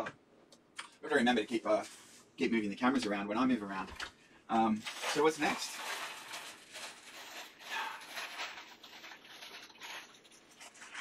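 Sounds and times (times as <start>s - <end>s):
plastic packaging crinkling: 4.7s - 11.0s.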